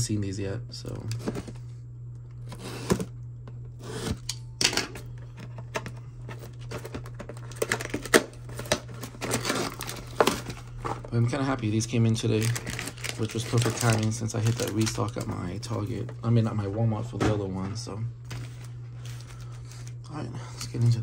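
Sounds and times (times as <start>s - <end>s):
plastic wrapper crinkling and tearing: 6.4s - 11.2s, 12.0s - 16.1s.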